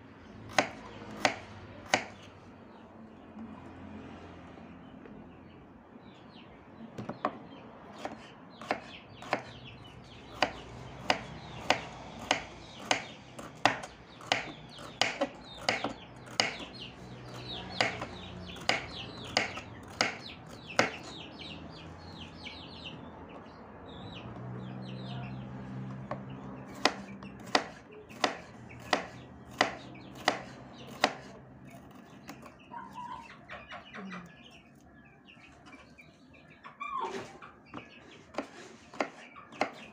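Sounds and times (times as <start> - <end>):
knife chopping on wooden board: 0.5 - 2.3, 7.0 - 9.6, 10.3 - 21.2, 25.9 - 32.5, 37.7 - 39.9
chicken clucking: 32.6 - 39.6.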